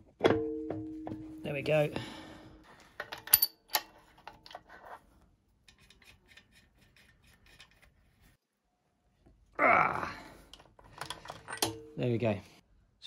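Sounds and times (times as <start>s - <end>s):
small metal clicks and clinks: 3.0s - 4.6s.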